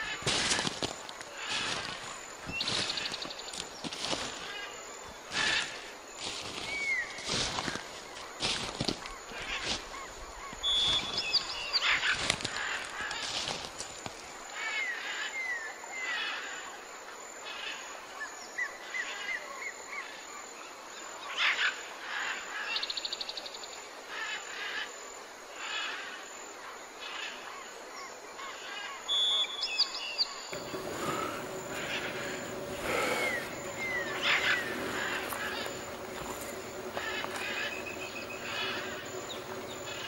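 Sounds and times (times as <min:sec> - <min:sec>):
rainforest background: 0:00.0 - 0:40.0
birds calling: 0:29.4 - 0:40.0
rapid bird trill: 0:30.5 - 0:40.0.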